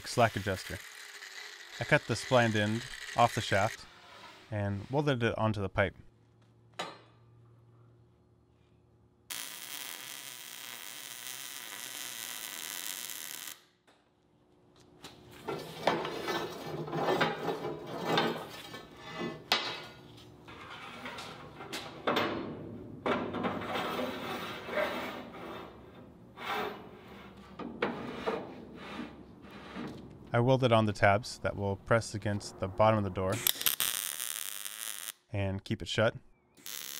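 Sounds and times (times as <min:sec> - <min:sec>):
welding crackle: 0:00.0 - 0:03.8, 0:09.3 - 0:13.8, 0:33.4 - 0:35.2, 0:36.6 - 0:36.9.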